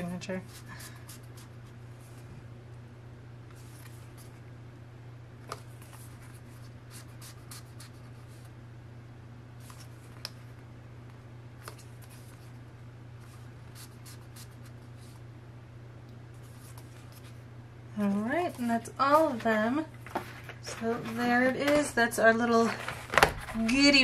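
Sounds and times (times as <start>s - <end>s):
paper rustling and tapping: 20.0s - 21.9s, 22.7s - 23.8s.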